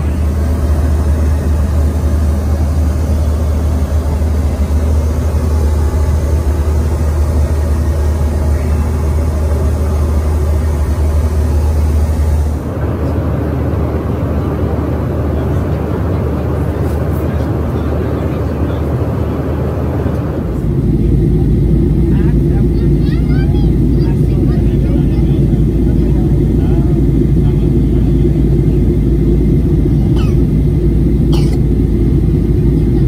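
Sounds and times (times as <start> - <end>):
airliner cabin engine noise: 0.0 - 33.0
deep hum: 0.0 - 33.0.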